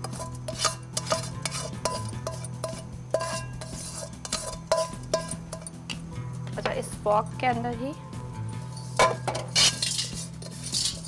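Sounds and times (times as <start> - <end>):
spoon clinking against pot: 0.0 - 6.0, 8.8 - 11.0.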